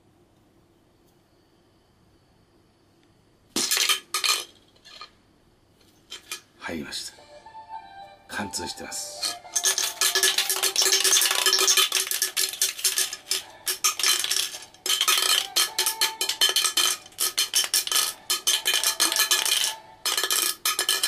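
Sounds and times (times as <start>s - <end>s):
coin rattling inside metal can: 3.6s - 5.1s, 9.2s - 21.0s.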